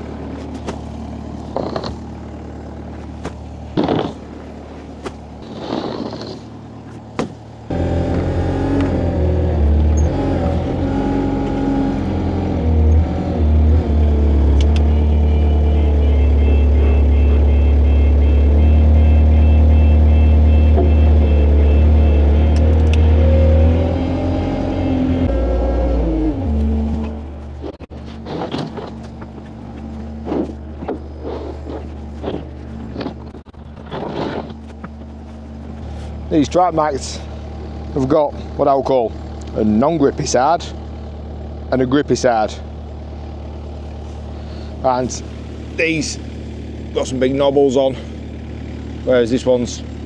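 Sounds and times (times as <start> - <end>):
heavy vehicle engine running: 0.0 - 50.0
knocks and clatters: 27.0 - 35.1.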